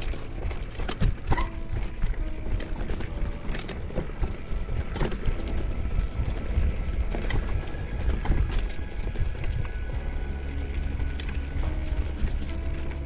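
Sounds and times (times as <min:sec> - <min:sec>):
bike knocks and rattles: 0:00.0 - 0:09.8
wind noise on microphone: 0:00.0 - 0:13.0.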